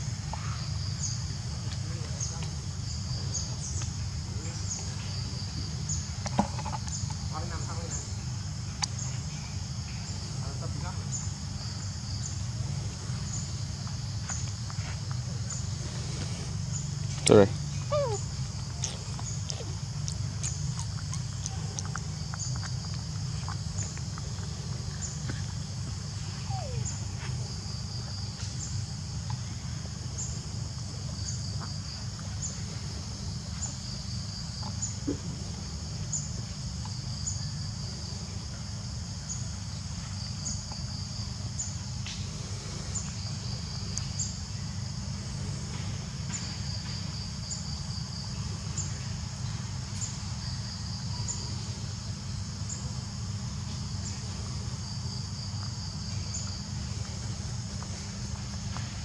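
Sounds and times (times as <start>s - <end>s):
insects buzzing: 0.0s - 59.0s
faint chirps: 15.4s - 19.8s, 26.2s - 27.3s.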